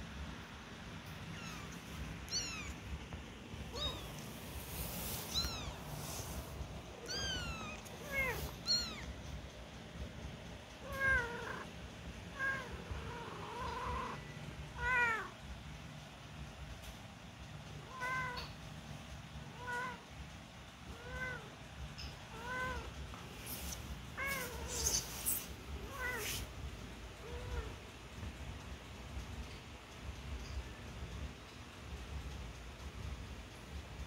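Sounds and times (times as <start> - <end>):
kittens mewing: 1.2 - 3.0, 3.6 - 9.2, 10.8 - 15.4, 22.2 - 27.8.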